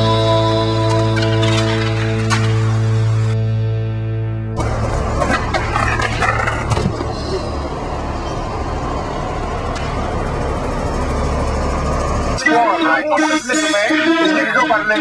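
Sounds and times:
low rumble of traffic: 0:00.0 - 0:15.0
skateboard clacks: 0:05.1 - 0:07.2.

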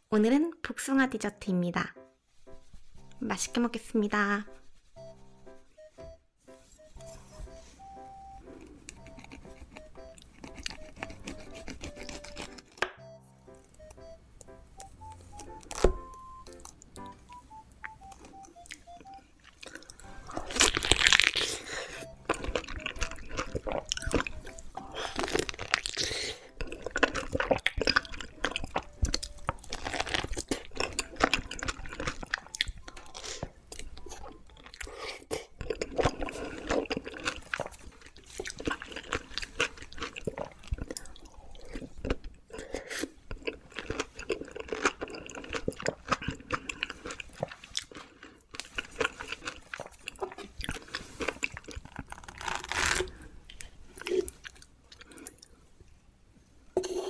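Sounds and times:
juicy chewing with crunchy clicks: 0:08.4 - 0:13.0, 0:14.8 - 0:55.5.

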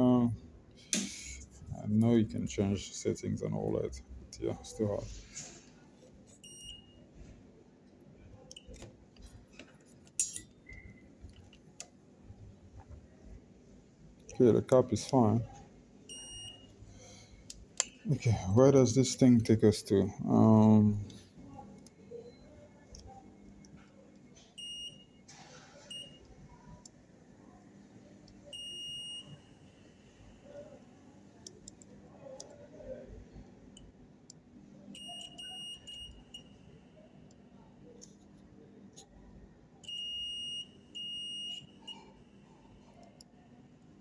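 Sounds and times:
multimeter continuity beeps: 0:06.4 - 0:07.0, 0:16.1 - 0:16.8, 0:24.6 - 0:25.2, 0:25.9 - 0:26.3, 0:28.4 - 0:30.6, 0:34.9 - 0:37.4, 0:39.8 - 0:43.2.

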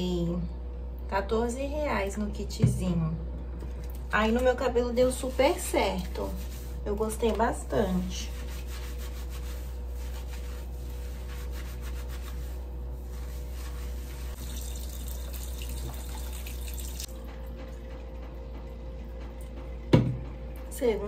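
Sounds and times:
wet hair scrubbed by hand: 0:05.1 - 0:07.0, 0:08.0 - 0:17.1
tap water running into sink: 0:14.4 - 0:17.8.

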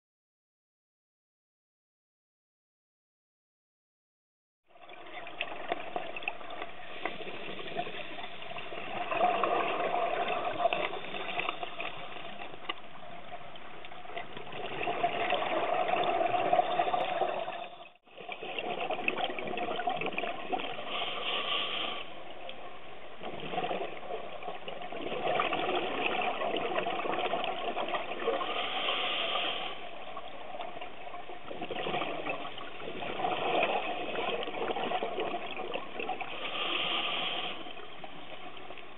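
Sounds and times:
divers breathing through regulators: 0:10.4 - 0:12.8, 0:20.7 - 0:22.2, 0:28.3 - 0:30.0, 0:36.2 - 0:37.9.

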